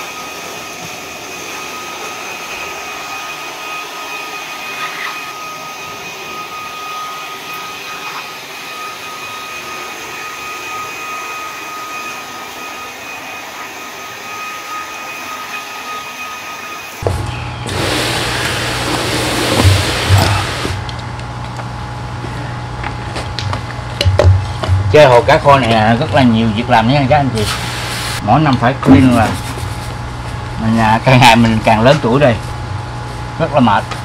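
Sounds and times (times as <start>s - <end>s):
pond vacuum motor whining: 0.0s - 34.0s
low hum with rushing noise: 17.0s - 34.0s.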